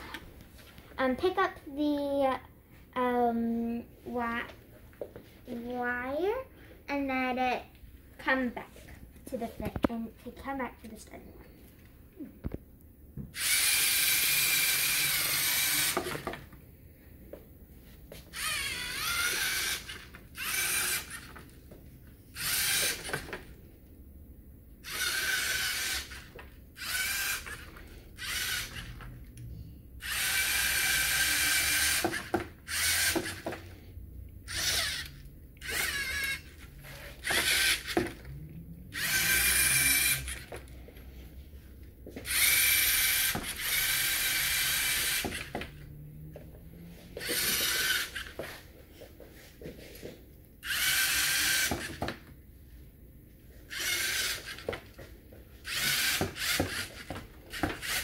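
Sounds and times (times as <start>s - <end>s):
servo motors whining: 13.3s - 16.5s, 18.1s - 21.5s, 22.3s - 23.6s, 24.8s - 40.8s, 42.0s - 48.7s, 50.0s - 52.2s, 53.6s - 55.0s, 55.6s - 58.0s.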